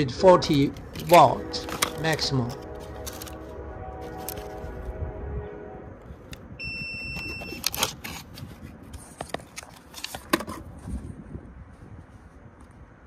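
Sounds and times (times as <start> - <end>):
box handling clicks and rustles: 0.4 - 3.4, 4.0 - 4.6, 7.2 - 10.8
electronic beep: 6.6 - 7.6.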